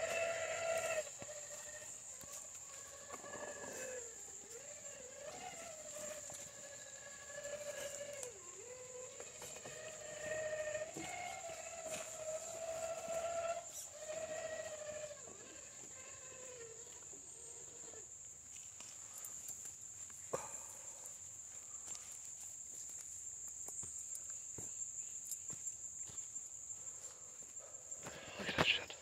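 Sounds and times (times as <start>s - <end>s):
electric motor whining: 0.0s - 17.8s
insect drone: 0.0s - 29.0s.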